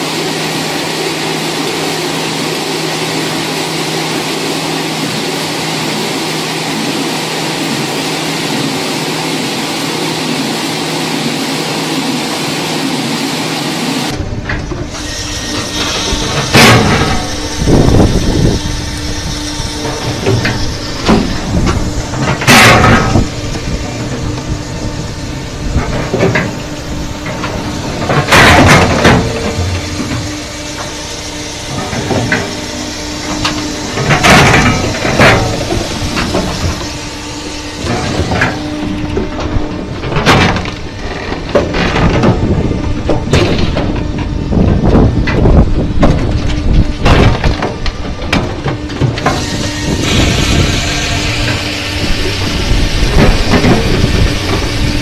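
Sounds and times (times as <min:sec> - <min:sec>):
loud burst of noise: 0:00.0 - 0:41.1, 0:49.2 - 0:55.0
firewood machine humming: 0:00.0 - 0:55.0
wooden knocks and clatter: 0:39.2 - 0:50.2.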